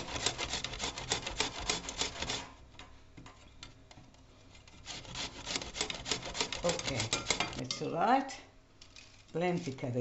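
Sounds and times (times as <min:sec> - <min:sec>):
carrot grated on metal grater: 0:00.0 - 0:02.6, 0:04.8 - 0:07.8.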